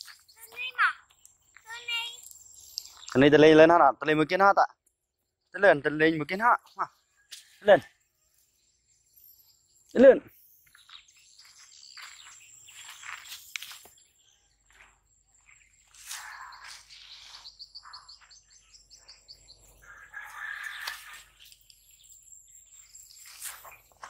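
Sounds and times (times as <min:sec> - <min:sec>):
faint bird chirping: 0:00.0 - 0:24.0
soft scuffing: 0:11.4 - 0:14.0, 0:14.6 - 0:17.5.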